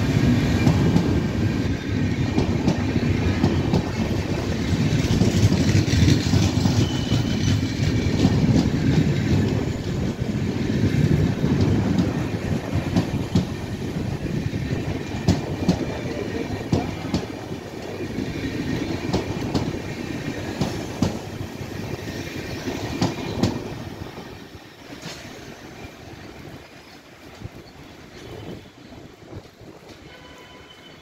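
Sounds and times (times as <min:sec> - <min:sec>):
train wheels clacking over rail joints: 0:02.0 - 0:10.3, 0:11.1 - 0:13.9, 0:14.8 - 0:21.4, 0:22.6 - 0:23.7.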